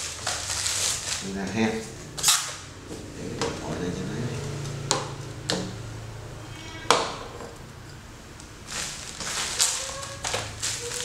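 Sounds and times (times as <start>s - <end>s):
packaging crinkling: 0.0s - 1.4s, 8.6s - 11.0s.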